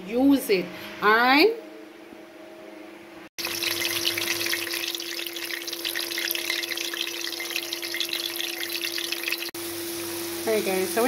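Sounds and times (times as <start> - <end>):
onions sizzling in hot oil: 3.4 - 11.0.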